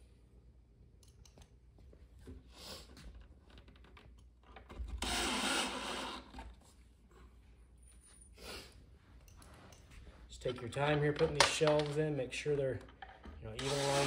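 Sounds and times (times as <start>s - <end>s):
cordless drill driving screw: 5.0s - 6.4s, 13.6s - 14.0s.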